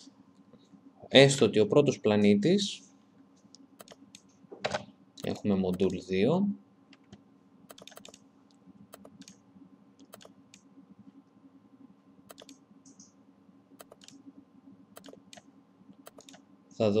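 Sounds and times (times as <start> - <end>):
low steady hum: 0.0 - 17.0
mouse and keyboard clicks: 3.8 - 6.0, 7.0 - 8.2, 10.0 - 10.6, 12.3 - 13.1, 13.8 - 14.2, 15.0 - 16.4.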